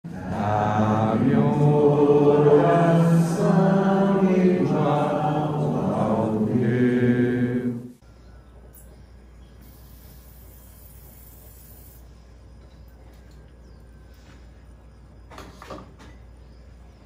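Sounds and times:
chant-like vocal music: 0:00.1 - 0:08.0.

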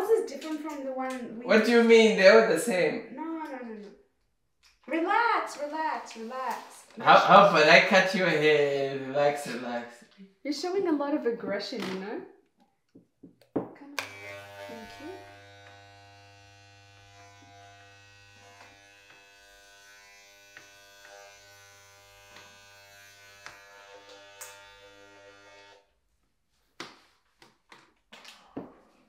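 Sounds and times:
electric hair clippers buzzing: 0:14.0 - 0:25.9.

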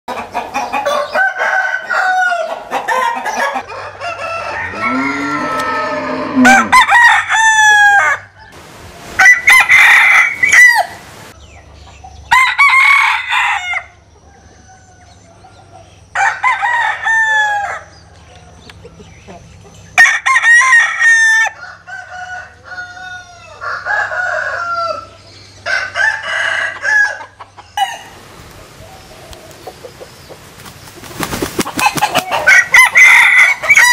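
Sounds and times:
rooster clucking: 0:00.1 - 0:08.6, 0:21.4 - 0:28.2, 0:28.8 - 0:33.9
rooster crowing: 0:00.8 - 0:08.6, 0:09.2 - 0:11.0, 0:12.3 - 0:15.4, 0:16.2 - 0:17.9, 0:20.0 - 0:28.2, 0:31.7 - 0:33.9.

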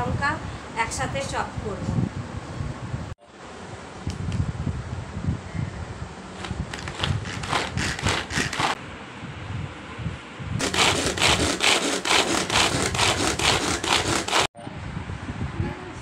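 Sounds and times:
vegetable chopper chopping onion: 0:06.5 - 0:08.8, 0:10.6 - 0:14.5.

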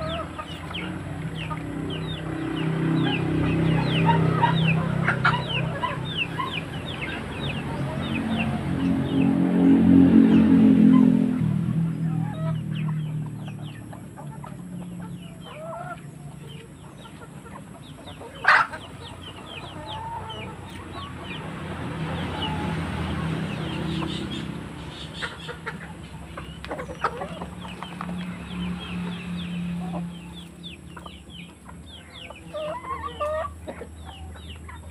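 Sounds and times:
chickens clucking and calling: 0:00.0 - 0:34.9.

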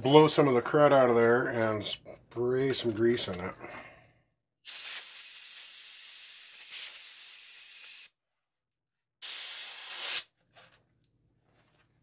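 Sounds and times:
compressed air blow gun blasting: 0:04.7 - 0:08.1, 0:09.2 - 0:10.3.

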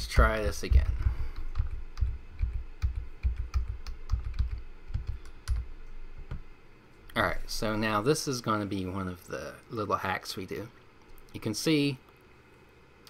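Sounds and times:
computer keyboard typing: 0:01.2 - 0:05.7.

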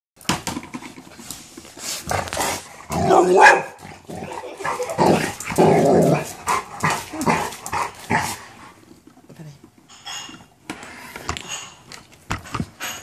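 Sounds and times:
dog barking and growling: 0:02.1 - 0:08.6.

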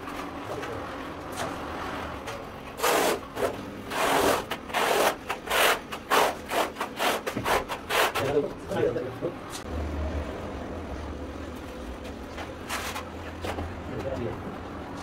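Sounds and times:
trowel scraping adhesive on concrete: 0:02.7 - 0:08.5.

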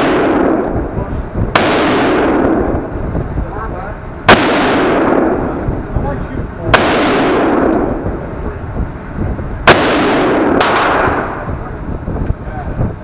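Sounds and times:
gunshots with ringing echo: 0:00.0 - 0:03.0, 0:04.2 - 0:05.7, 0:06.7 - 0:08.3, 0:09.6 - 0:11.8.

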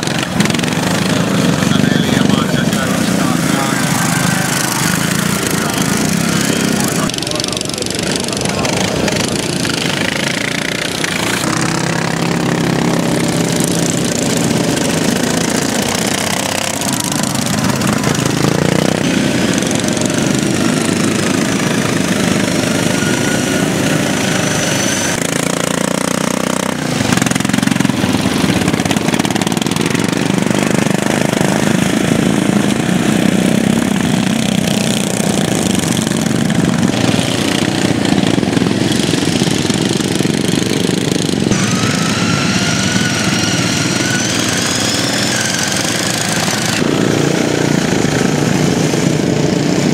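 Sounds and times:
lawn mower engines revving: 0:00.0 - 0:49.9.

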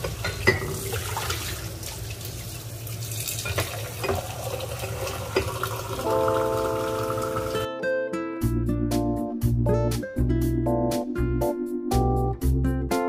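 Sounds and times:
rushing water: 0:00.0 - 0:07.6
guitar music: 0:06.0 - 0:13.0.

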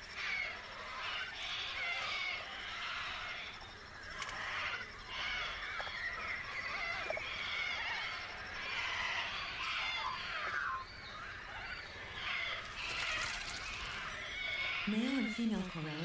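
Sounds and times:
flock of birds screeching: 0:00.0 - 0:16.0.

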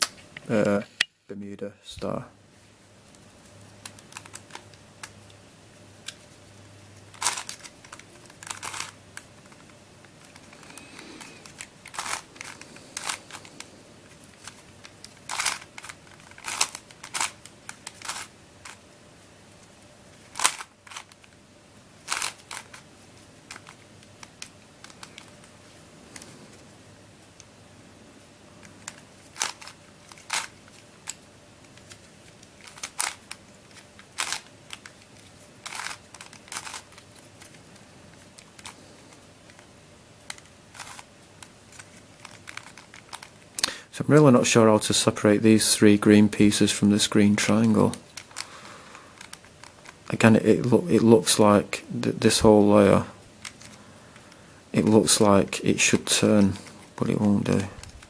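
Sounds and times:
puzzle cube clicking as it turns: 0:07.1 - 0:18.8, 0:20.2 - 0:21.4, 0:22.0 - 0:25.5, 0:28.6 - 0:43.8, 0:47.3 - 0:51.3.

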